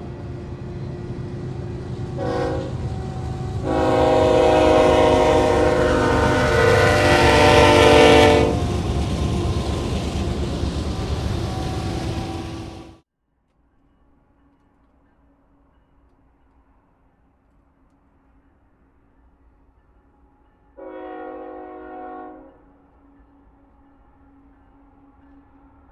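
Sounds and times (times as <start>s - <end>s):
train rumbling: 0.0s - 13.0s
locomotive air horn: 2.1s - 9.5s, 20.8s - 22.6s.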